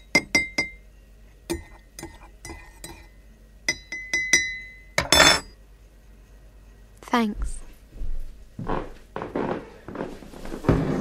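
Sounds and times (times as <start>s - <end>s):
teaspoon clinking against cup: 1.5s - 3.1s, 3.7s - 5.5s.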